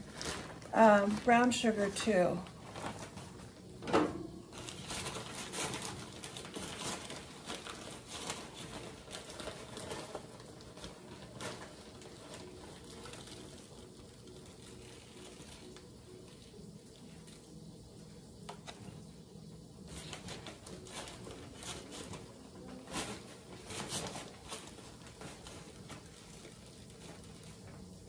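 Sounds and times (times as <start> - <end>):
sugar bag rustling: 0.0 - 28.0.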